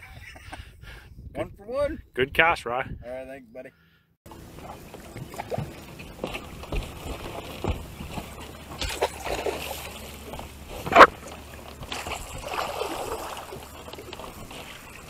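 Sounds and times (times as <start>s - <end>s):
water splashing: 4.3s - 15.0s.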